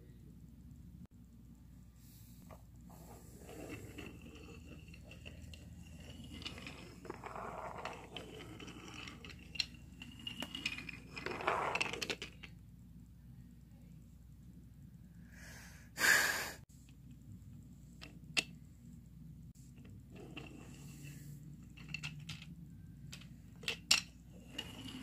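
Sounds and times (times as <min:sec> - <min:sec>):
toy train clicking on track: 0:03.4 - 0:12.5.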